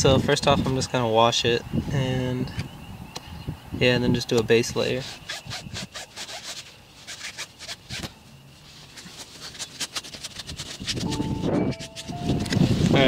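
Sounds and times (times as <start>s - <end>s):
cloth wiping rubber tyre: 5.0s - 13.0s.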